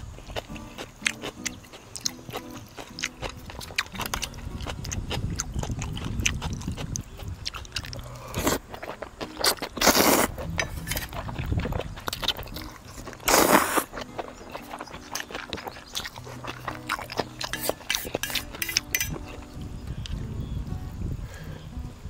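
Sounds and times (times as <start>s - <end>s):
chewing with small clicks: 0.0s - 20.2s
slurping noodles: 4.0s - 18.9s.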